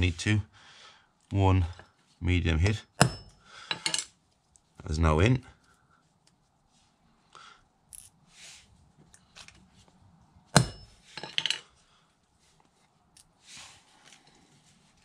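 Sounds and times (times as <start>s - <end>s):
metal fixings clinking: 2.8s - 4.2s, 10.5s - 11.8s
soft rustles: 5.6s - 7.2s, 8.2s - 10.1s, 11.0s - 15.0s.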